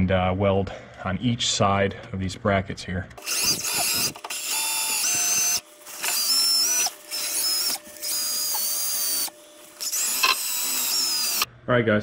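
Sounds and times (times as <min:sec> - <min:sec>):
cordless drill with wire wheel on steel: 0:03.2 - 0:11.5.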